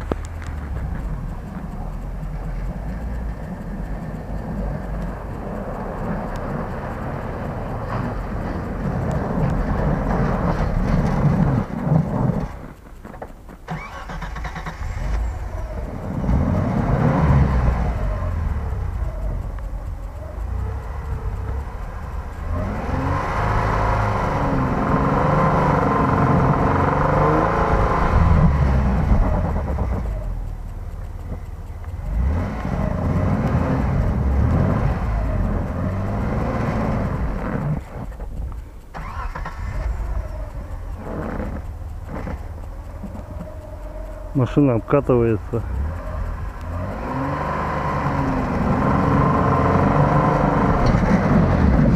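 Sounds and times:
wheels spinning in snow: 0.0 - 51.9
engine revving hard: 13.7 - 19.6, 20.3 - 30.3, 31.9 - 38.1, 39.0 - 42.6, 44.1 - 51.9.

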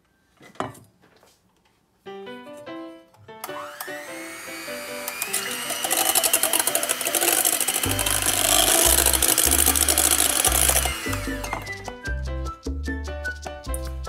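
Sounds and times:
electric hand mixer whirring: 3.4 - 11.8.

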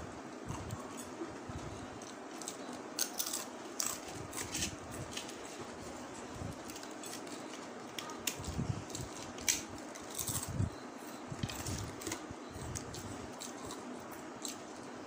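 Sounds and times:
crunching and chewing crispy fish: 2.0 - 5.4, 6.6 - 10.6.

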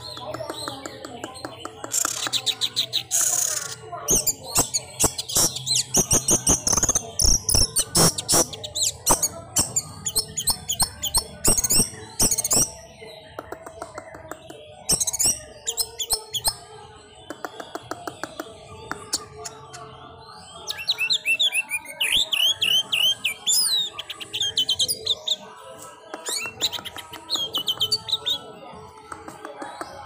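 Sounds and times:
thrush singing whistled notes: 19.2 - 25.4.

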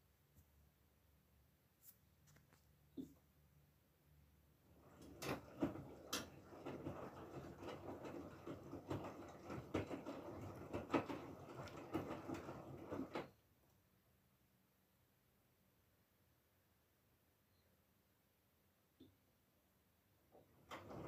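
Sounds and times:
washing machine drum tumbling: 4.7 - 13.3, 20.5 - 21.0.

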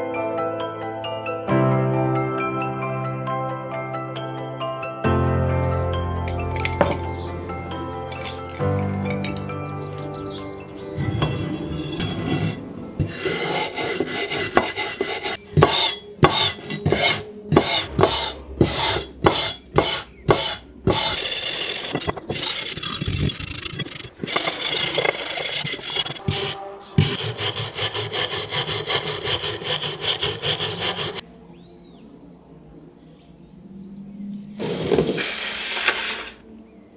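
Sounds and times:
wire brush scrubbing rusty iron: 11.3 - 31.2.

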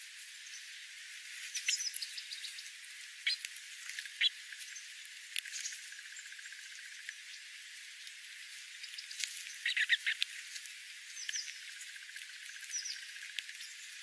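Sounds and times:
steady hiss: 0.0 - 14.0
thin falling high bird calls: 1.4 - 4.9, 8.8 - 14.0
sparrows chirping: 1.5 - 6.6, 8.8 - 14.0.

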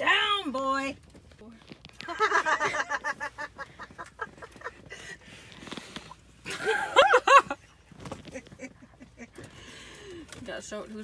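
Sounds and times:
person laughing: 2.1 - 5.0, 6.5 - 7.6.

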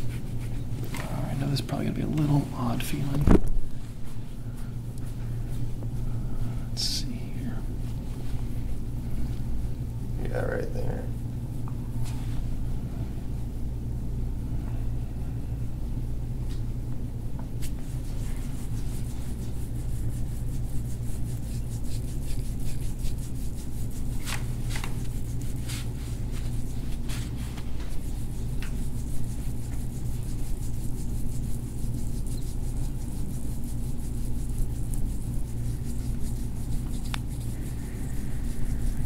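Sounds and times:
hands rubbing skin: 0.0 - 2.9, 17.6 - 39.0
steady low hum: 0.0 - 39.0.

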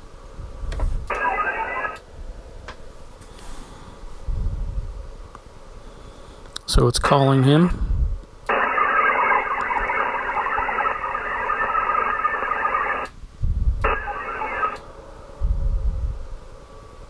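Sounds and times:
digital modem data tones: 1.1 - 2.0, 8.5 - 13.1, 13.8 - 14.8.

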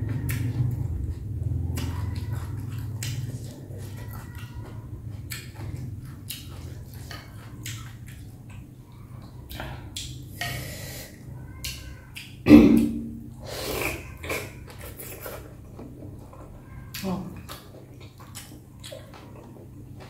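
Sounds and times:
wet chewing and lip smacks: 0.1 - 10.2, 13.8 - 20.0
slurping noodles: 13.4 - 16.2.

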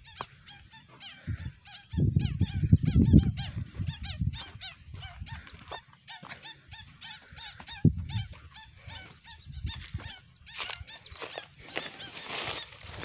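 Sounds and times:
night herons honking: 0.0 - 2.0, 3.9 - 13.0.

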